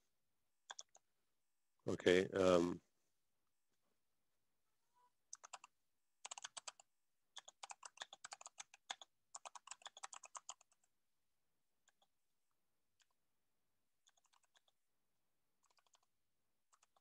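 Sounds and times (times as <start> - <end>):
faint keyboard typing: 0.6 - 1.1, 5.2 - 10.9, 11.8 - 12.2, 12.9 - 13.2, 14.0 - 14.8, 15.6 - 17.0.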